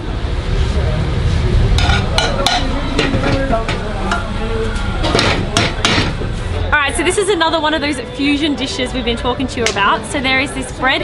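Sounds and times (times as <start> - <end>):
low background noise: 0.0 - 11.0
utensils clinking and knocking: 1.8 - 4.3.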